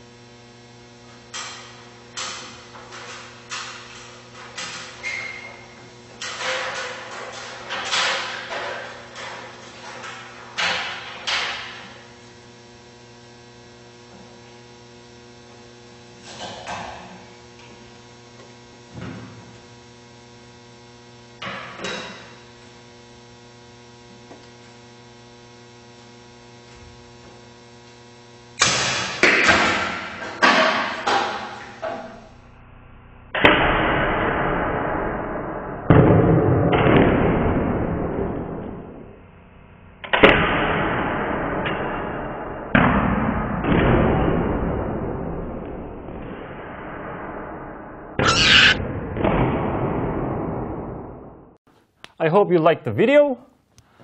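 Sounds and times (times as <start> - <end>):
steady electrical hum: 0.0 - 49.1
loud sudden bangs: 48.2 - 50.1.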